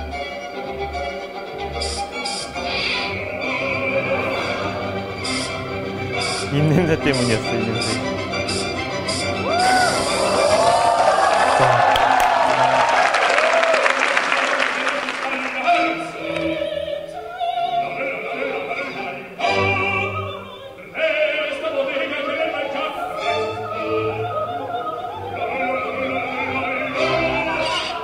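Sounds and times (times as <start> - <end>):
operatic male singing: 6.5 - 8.0, 14.6 - 16.8, 17.7 - 24.0.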